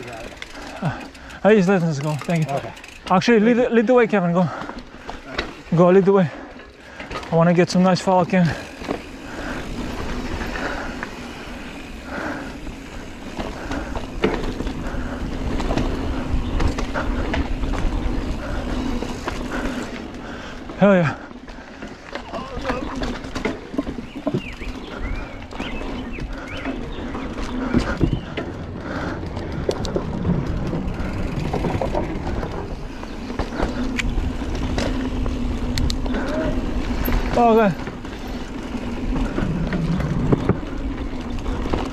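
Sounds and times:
bike clicks and rattles: 0.0s - 41.9s
knobby tyres rolling on dirt: 0.0s - 41.9s
wind rumbling on microphone: 22.4s - 41.9s.

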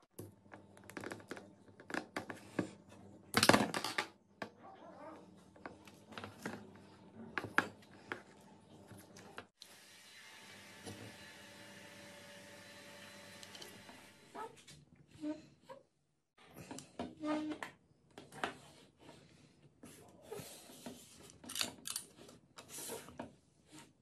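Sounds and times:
pliers and small parts handled: 21.3s - 22.3s.

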